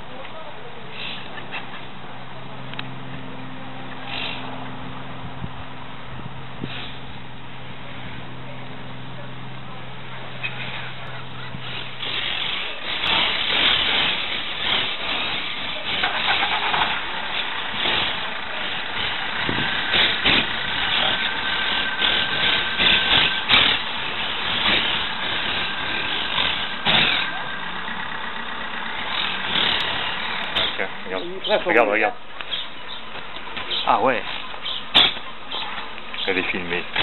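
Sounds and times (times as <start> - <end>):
parakeets chattering with harsh squawks: 29.0 - 37.0.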